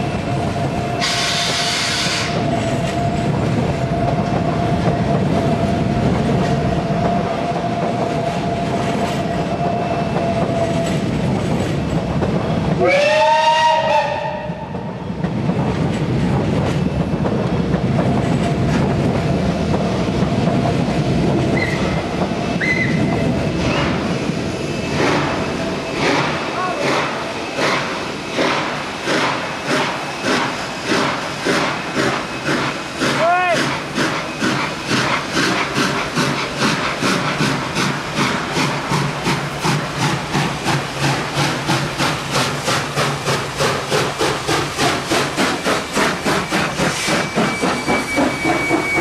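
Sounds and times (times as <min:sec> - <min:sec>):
steam hissing: 0:00.0 - 0:11.8, 0:12.4 - 0:49.0
locomotive rumbling: 0:00.0 - 0:49.0
sharp burst of steam: 0:01.0 - 0:02.4, 0:24.6 - 0:49.0
steam whistle blast: 0:01.0 - 0:02.4, 0:12.8 - 0:14.8.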